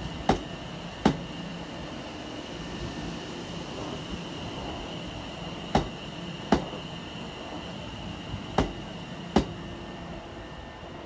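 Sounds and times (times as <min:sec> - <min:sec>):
train wheels knocking on rail joints: 0:00.0 - 0:01.3, 0:05.7 - 0:06.8, 0:08.5 - 0:09.6
faint high whine: 0:00.0 - 0:11.0
train running hum: 0:00.0 - 0:11.0.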